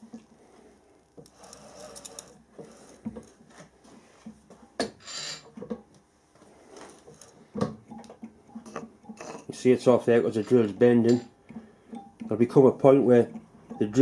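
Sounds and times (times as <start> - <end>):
drill scraping metal: 1.3 - 3.1, 5.0 - 5.5.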